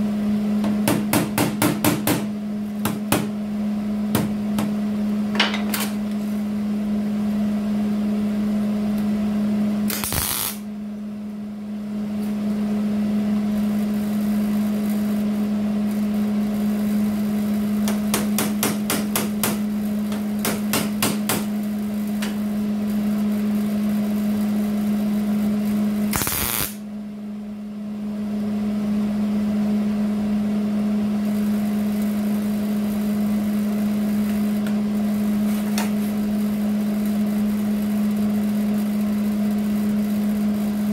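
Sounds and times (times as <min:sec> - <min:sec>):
welding arc crackling: 0:09.8 - 0:10.7, 0:13.4 - 0:26.8, 0:31.2 - 0:40.9.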